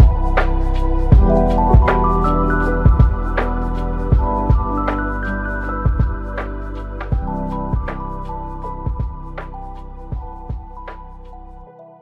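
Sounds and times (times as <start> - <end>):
held chords and notes: 0.0 - 12.0
drum hits: 2.9 - 3.3.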